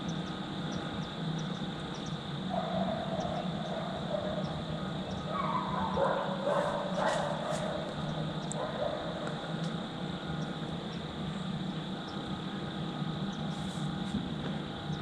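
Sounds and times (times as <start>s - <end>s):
canines howling and yipping: 5.3s - 7.7s.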